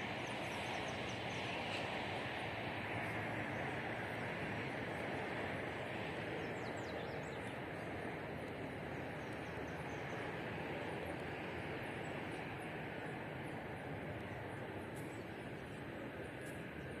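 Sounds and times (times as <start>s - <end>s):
steady rushing background noise: 0.0s - 17.0s
small birds chirping: 6.2s - 10.6s.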